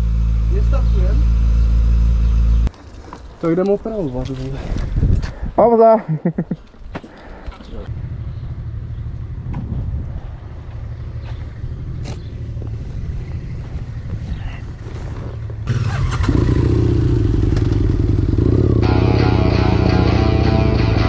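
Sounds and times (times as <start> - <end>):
motorcycle engine running: 7.9 - 21.0.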